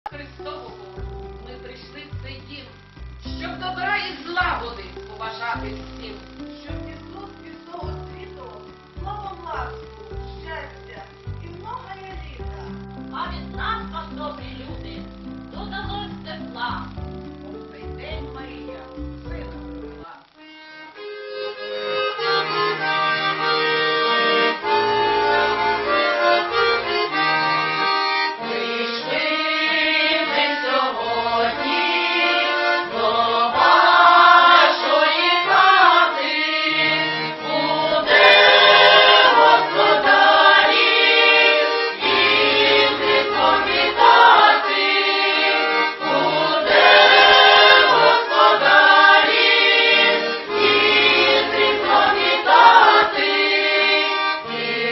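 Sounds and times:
accordion: 0.0 - 54.9
women's choir singing: 22.8 - 54.9.

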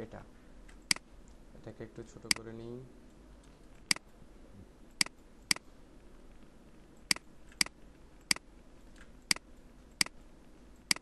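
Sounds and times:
computer mouse clicking: 7.0 - 10.2.

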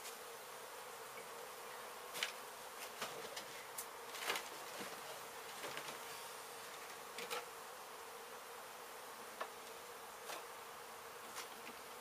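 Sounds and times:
bees humming: 0.0 - 12.0
knocks and rustles: 2.1 - 6.1.

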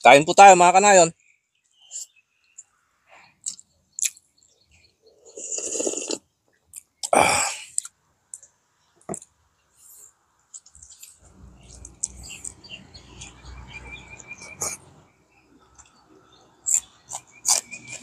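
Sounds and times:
chewing: 3.4 - 4.2, 5.2 - 8.5, 10.5 - 13.4, 15.6 - 18.0
wet mouth clicks and smacks: 3.4 - 4.2, 16.7 - 18.0
person slurping soup: 5.2 - 6.2, 14.4 - 15.0.

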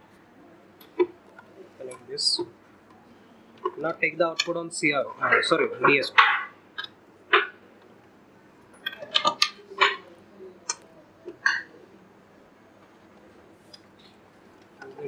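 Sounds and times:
test leads clicking into sockets: 3.6 - 4.6.

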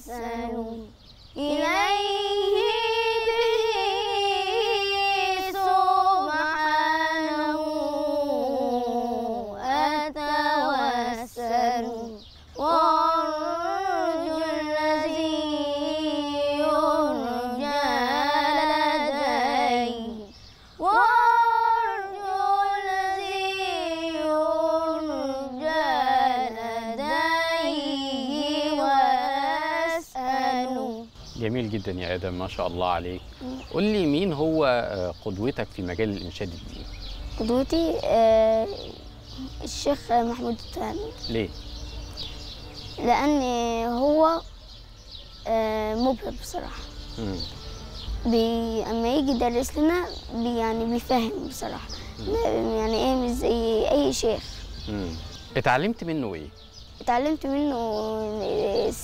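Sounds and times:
boy singing devotional chant: 0.0 - 31.2, 37.4 - 41.4, 48.2 - 55.1, 57.1 - 59.0.

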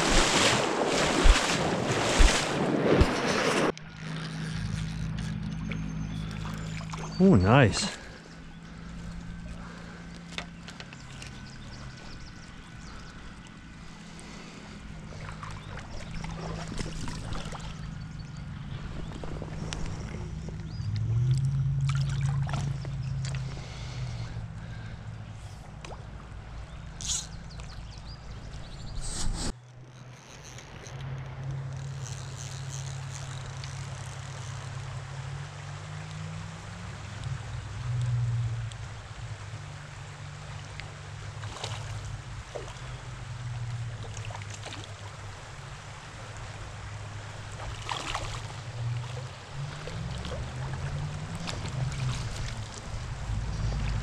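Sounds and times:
small splashes: 0.0 - 28.9, 29.8 - 54.0
creek water running: 0.0 - 54.0
stream running over rocks: 6.2 - 8.0, 38.5 - 54.0.

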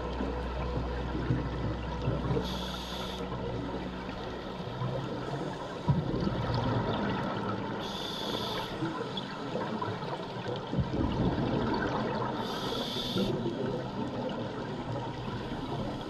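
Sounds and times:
underwater rushing: 0.0 - 16.0
scuba regulator breath hiss: 2.4 - 3.2, 7.8 - 8.9, 12.4 - 13.4.

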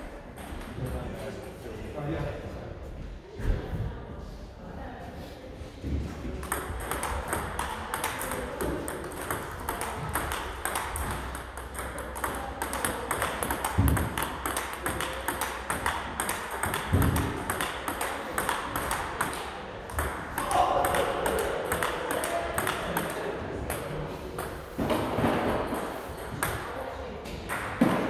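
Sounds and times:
table tennis ball clicking: 6.4 - 23.2.

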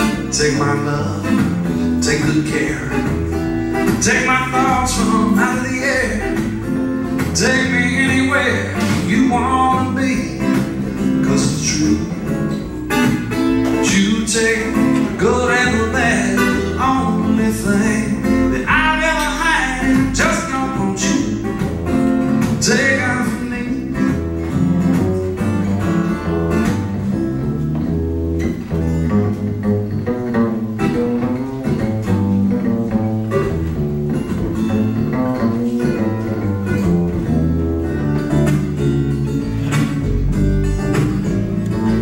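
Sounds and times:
man singing: 0.0 - 12.6, 13.6 - 21.6, 22.4 - 24.6
acoustic guitar strumming: 0.0 - 42.0
plucked upright bass: 0.0 - 42.0.

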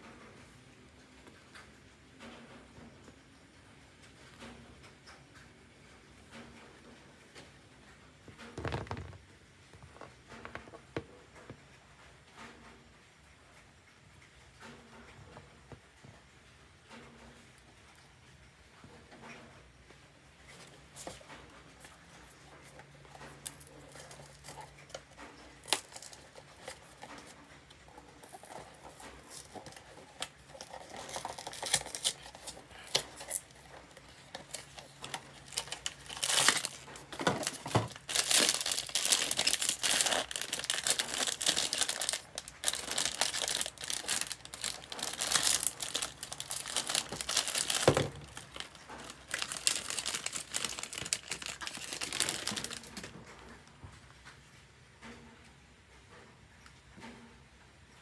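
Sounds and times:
foil wrapper crinkling: 22.2 - 53.3
cardboard box opened: 34.3 - 53.0.

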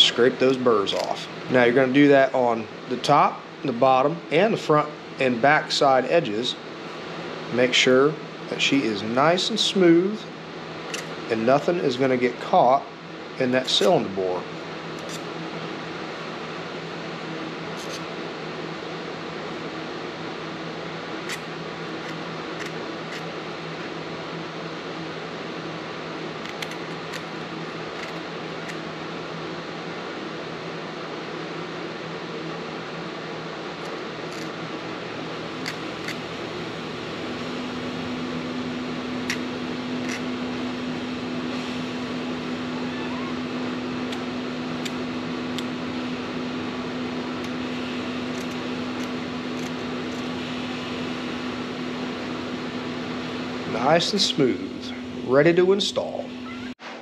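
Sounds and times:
steady machine hum: 0.0 - 57.0
needle file scraping metal: 15.0 - 15.2, 17.8 - 18.0.

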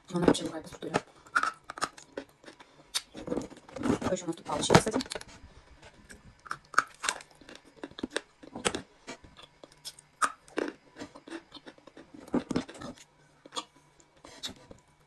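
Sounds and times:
clay being bitten and chewed: 6.1 - 14.9.

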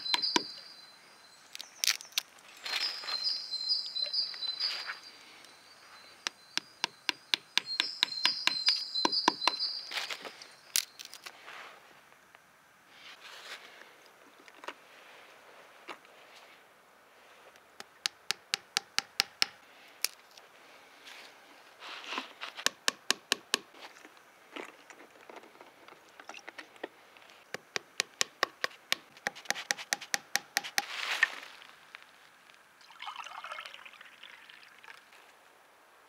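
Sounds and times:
hammer tapping wooden peg: 0.0 - 0.5, 6.3 - 9.6, 17.8 - 19.6, 22.7 - 23.7, 27.5 - 30.9.

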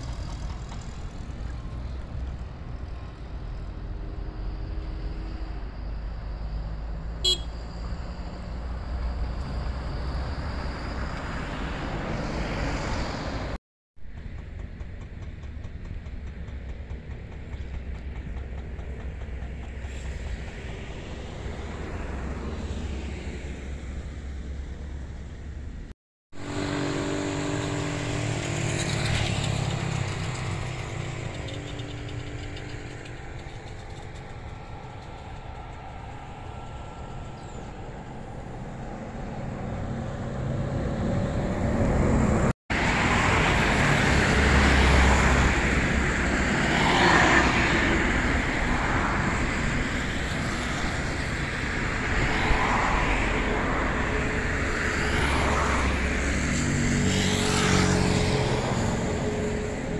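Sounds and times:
jet airliner engines rushing: 0.0 - 13.6, 18.8 - 59.9
passing vehicle engine hum: 0.0 - 13.6, 26.4 - 59.9.

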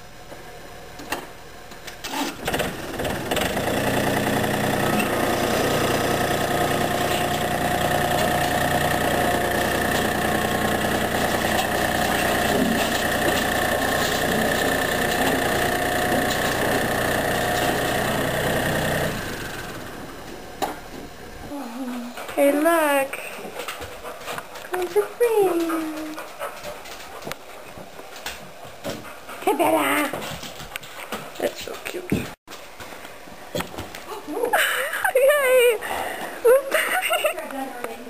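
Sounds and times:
diesel tractor engine: 2.4 - 20.5.

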